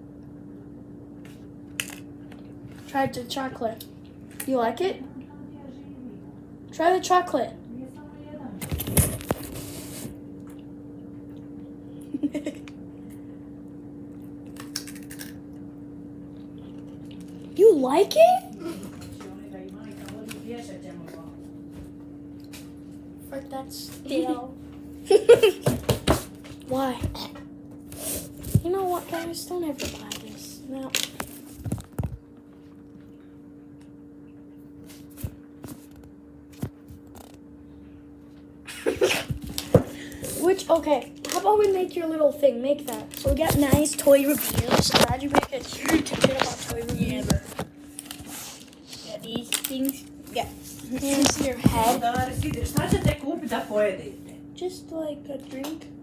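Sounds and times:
steady low hum: 0:00.0 - 0:56.0
crunchy chewing clicks: 0:14.1 - 0:15.7
rustling handling noise: 0:42.8 - 0:53.7.

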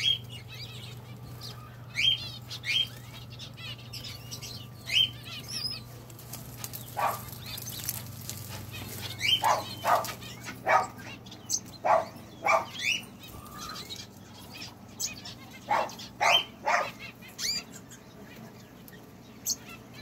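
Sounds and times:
finches chirping faintly: 0:00.0 - 0:20.0
dog barking: 0:07.0 - 0:07.4, 0:09.3 - 0:11.1, 0:11.8 - 0:12.8, 0:15.6 - 0:17.0.

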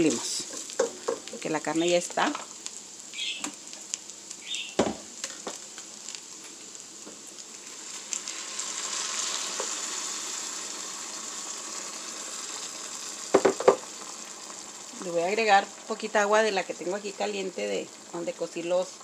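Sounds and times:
sauce sizzling and bubbling in pot: 0:00.0 - 0:19.0
sharp knocks: 0:13.4 - 0:13.8.

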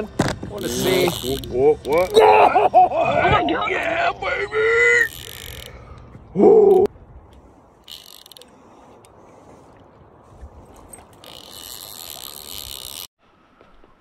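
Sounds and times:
fishing reel ratcheting: 0:00.6 - 0:02.2, 0:05.1 - 0:05.8, 0:07.8 - 0:08.5, 0:11.1 - 0:13.1.

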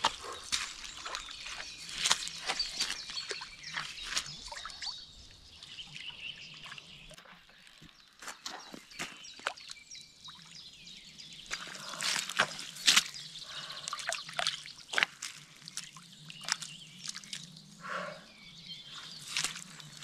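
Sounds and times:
fish splashing in shallow water: 0:00.0 - 0:05.2, 0:11.4 - 0:17.6
water dripping: 0:00.0 - 0:10.5, 0:11.5 - 0:17.6.

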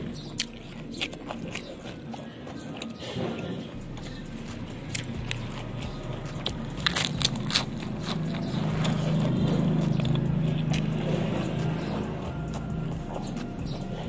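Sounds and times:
lettuce crunching and chewing: 0:00.0 - 0:14.0
low drone: 0:02.8 - 0:14.0.

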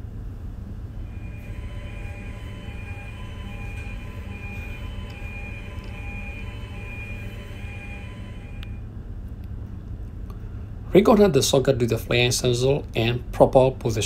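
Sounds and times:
engine room machinery rumble: 0:00.0 - 0:14.0
alarm beeping: 0:00.9 - 0:08.9.

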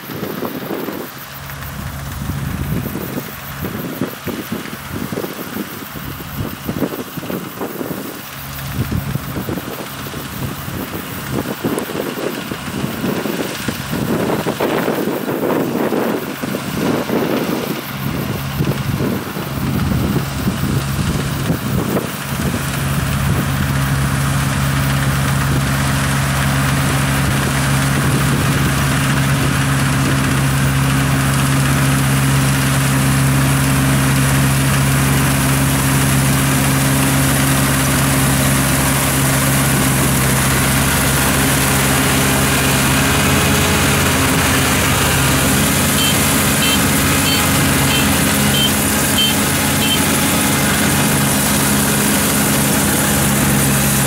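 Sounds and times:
combine harvester engine running: 0:00.0 - 0:54.0
wind buffeting microphone: 0:02.2 - 0:23.7.

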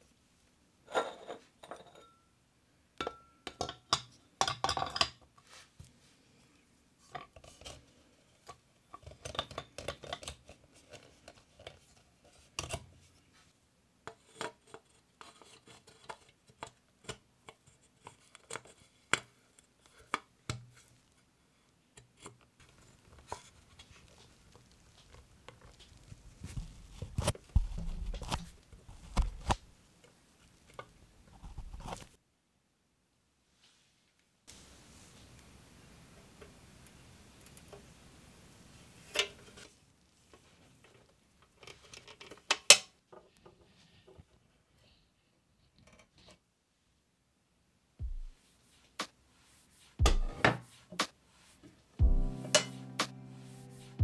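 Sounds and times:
rustling and knocking: 0:25.0 - 0:29.5, 0:50.0 - 0:52.7.

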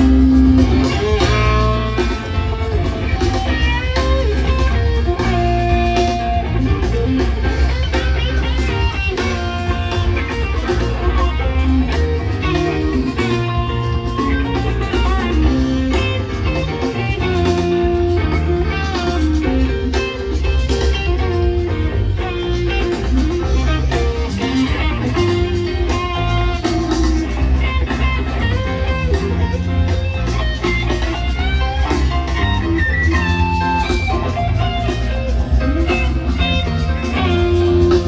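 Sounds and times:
electric guitar runs: 0:00.0 - 0:38.0
rock band jamming: 0:00.0 - 0:38.0.

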